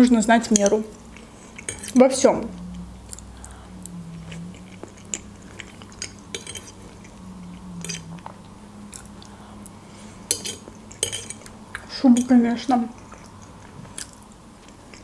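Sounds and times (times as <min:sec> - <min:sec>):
wet chewing: 0:00.5 - 0:11.9, 0:12.9 - 0:15.0
metal fork scraping a plate: 0:04.6 - 0:07.1, 0:07.8 - 0:08.1, 0:10.3 - 0:11.5.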